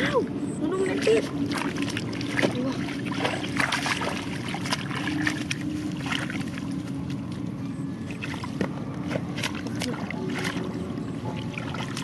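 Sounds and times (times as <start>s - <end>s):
muddy water splashing: 0.0s - 12.0s
hands working through mud: 8.1s - 10.8s.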